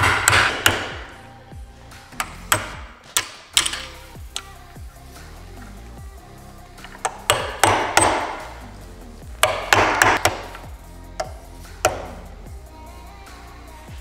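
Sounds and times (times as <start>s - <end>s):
hammer striking metal punch: 0.0s - 1.2s, 7.0s - 8.6s, 9.4s - 12.2s.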